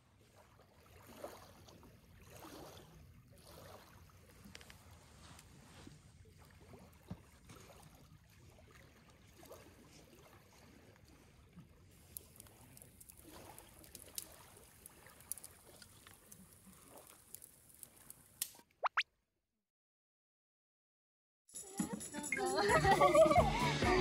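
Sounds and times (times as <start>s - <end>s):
small waves lapping on pebbles: 0.0s - 18.4s
wood fire crackling and popping: 12.1s - 18.6s.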